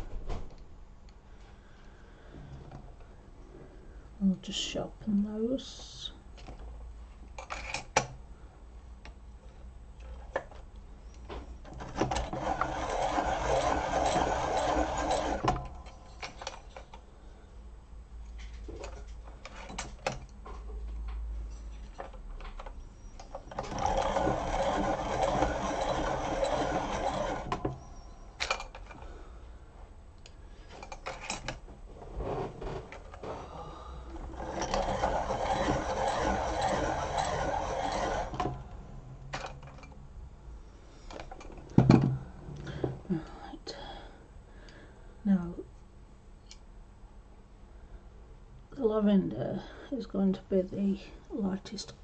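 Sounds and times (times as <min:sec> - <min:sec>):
electric pencil sharpener running: 0:12.0 - 0:15.9, 0:23.5 - 0:28.0, 0:34.1 - 0:38.8.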